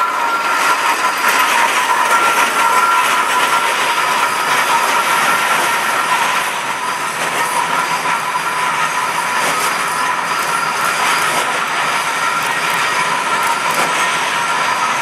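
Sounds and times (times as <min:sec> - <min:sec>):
thin steady squeal: 0:00.0 - 0:15.0
train wheels clattering on rails: 0:00.0 - 0:15.0.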